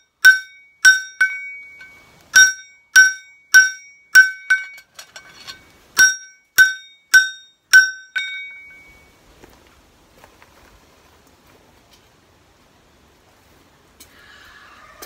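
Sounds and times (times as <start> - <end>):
hammer striking blade on anvil: 0.0 - 9.0.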